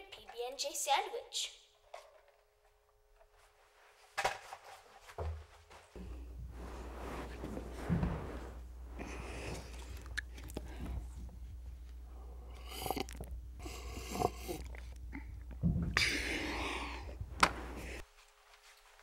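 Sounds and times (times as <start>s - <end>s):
rustling and handling noises: 2.0s - 12.0s, 17.2s - 19.0s
low steady hum: 5.9s - 18.1s.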